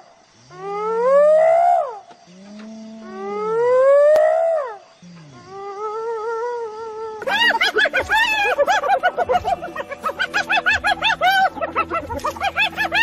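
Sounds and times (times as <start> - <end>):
animal laugh-like calls: 7.2 - 13.0.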